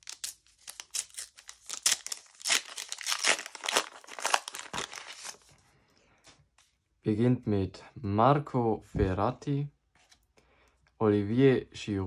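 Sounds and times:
wrapper tearing and crinkling: 0:00.0 - 0:05.5.

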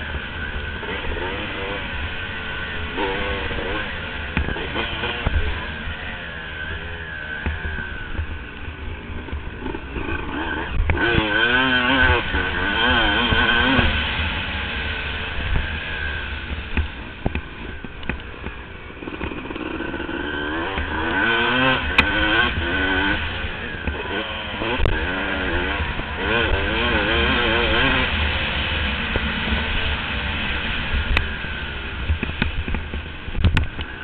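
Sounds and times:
motorbike engine revving: 0:00.0 - 0:34.0
wind rumble on microphone: 0:29.8 - 0:34.0.

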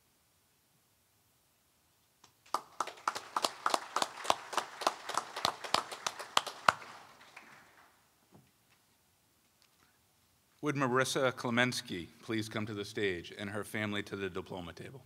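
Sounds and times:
sharp claps: 0:02.2 - 0:08.0
small audience clapping: 0:02.2 - 0:08.1.

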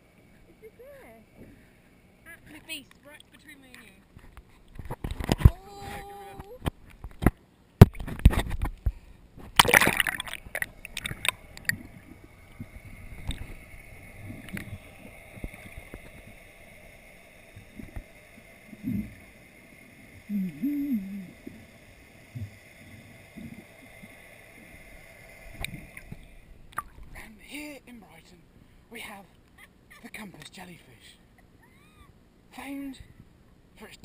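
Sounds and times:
water splashing and sloshing: 0:06.6 - 0:19.6, 0:22.3 - 0:27.3
muffled underwater gurgles: 0:17.5 - 0:19.4, 0:20.2 - 0:24.0.

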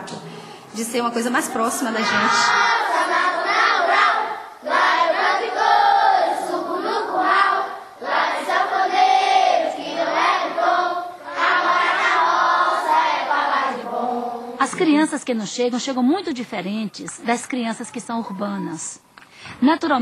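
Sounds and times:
children singing together: 0:02.1 - 0:14.6.

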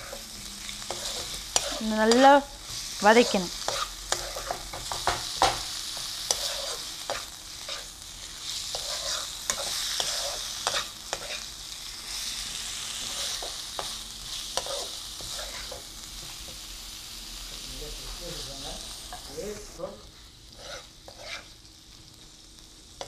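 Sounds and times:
spatula scraping a pan: 0:00.0 - 0:15.9, 0:20.2 - 0:21.6
chicken sizzling in a frying pan: 0:00.0 - 0:23.0.

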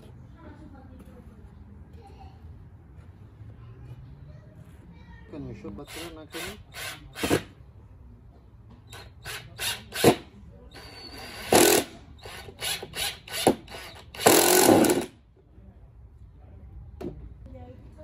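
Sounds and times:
power drill drilling into wood: 0:10.8 - 0:15.1.

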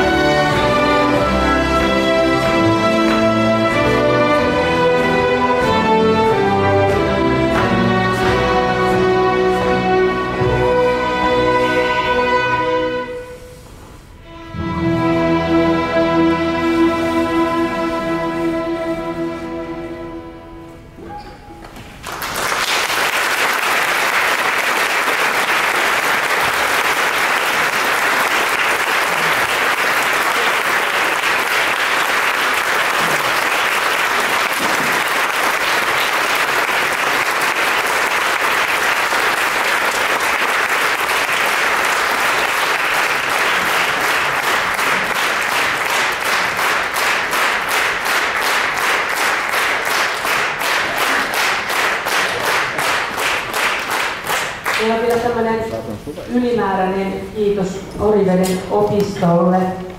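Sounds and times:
rhythmic clapping in unison: 0:01.9 - 0:09.2, 0:22.0 - 0:55.4
audience applauding: 0:22.0 - 0:55.3.

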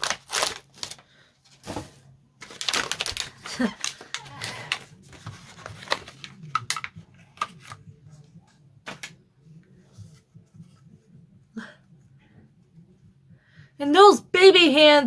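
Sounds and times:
plastic packaging rustling: 0:00.0 - 0:07.9.

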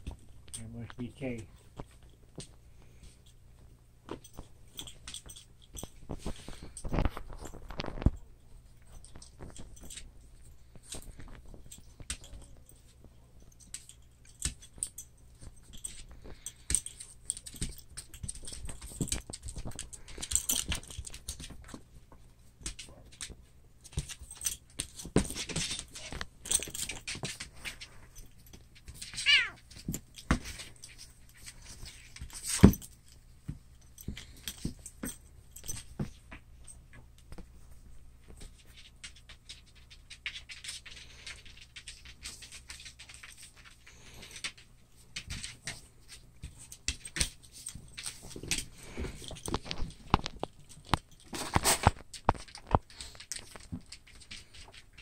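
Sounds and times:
claws scrabbling on tiles: 0:01.6 - 0:55.0
high wavering animal cry: 0:29.2 - 0:29.6.

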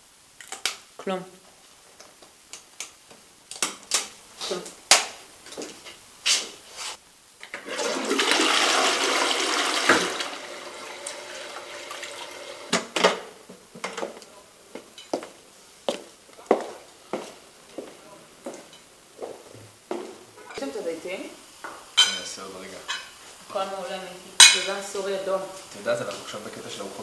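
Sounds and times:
toilet flushing: 0:07.5 - 0:13.0
toilet tank refilling: 0:07.5 - 0:13.0.

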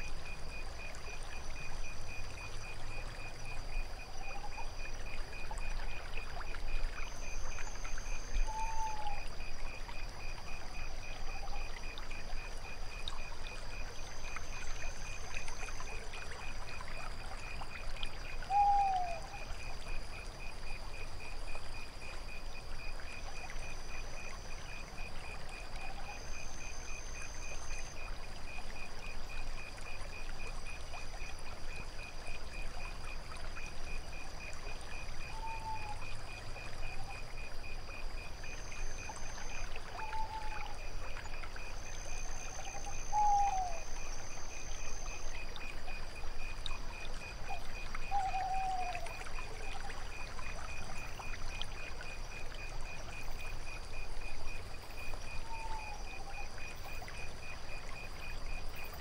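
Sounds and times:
crickets chirping: 0:00.0 - 0:59.0
trickling water: 0:00.0 - 0:59.0
high insect trill: 0:33.9 - 0:59.0.

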